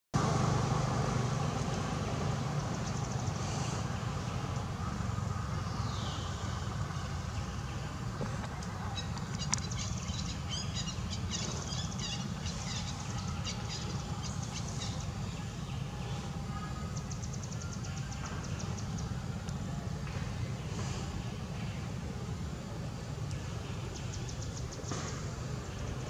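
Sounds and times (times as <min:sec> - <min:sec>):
birds chirping and trilling: 0:02.3 - 0:19.3, 0:23.3 - 0:26.0.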